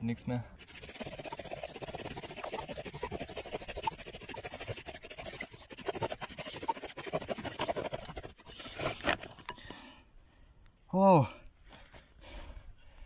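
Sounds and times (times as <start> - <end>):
bow drill spindle grinding: 0.6 - 9.4.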